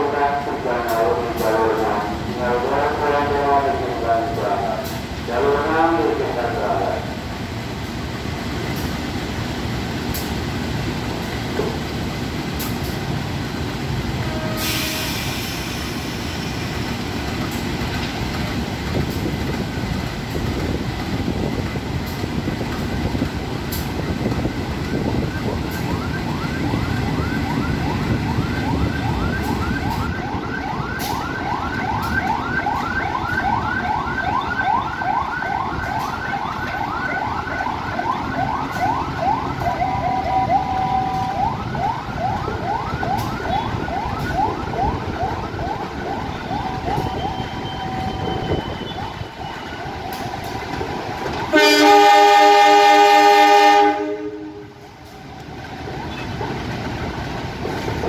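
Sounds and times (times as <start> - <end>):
electric train rumbling: 0.0 - 58.0
locomotive horn blast: 14.2 - 15.7, 51.5 - 54.8
siren yelping: 24.9 - 50.5.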